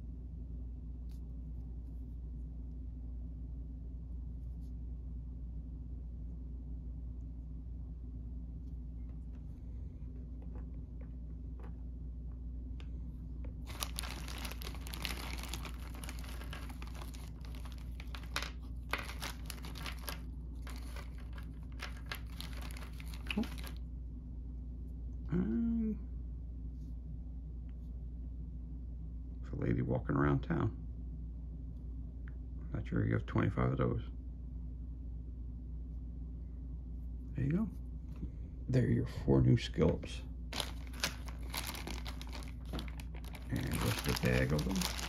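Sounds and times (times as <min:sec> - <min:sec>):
steady low hum: 0:00.0 - 0:45.0
plastic bag crinkling: 0:13.6 - 0:23.8, 0:40.5 - 0:45.0.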